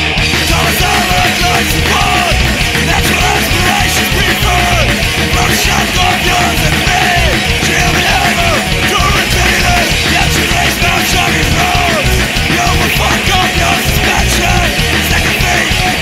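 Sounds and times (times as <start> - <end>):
punk rock song: 0.0 - 16.0
shouted vocals: 0.0 - 16.0.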